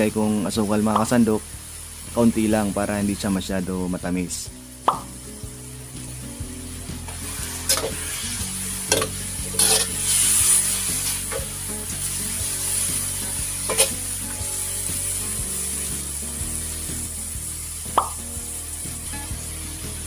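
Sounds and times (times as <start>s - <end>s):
meat sizzling in a wok: 0.0s - 20.0s
utensil scraping pan: 7.2s - 11.4s, 13.6s - 14.0s
utensil clinking against pan: 8.9s - 9.9s.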